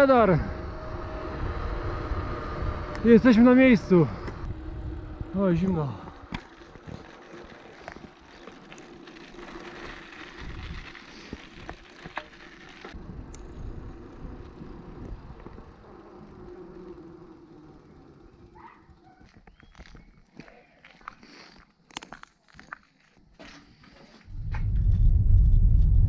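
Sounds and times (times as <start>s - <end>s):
bicycle clicks and rattles: 5.5s - 20.4s, 21.0s - 25.0s
wind on microphone: 24.3s - 26.0s.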